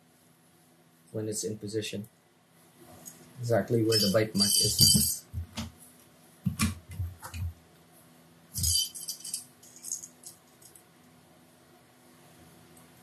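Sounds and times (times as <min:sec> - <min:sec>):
metallic jingle of hook: 0:03.9 - 0:05.3, 0:08.6 - 0:10.4.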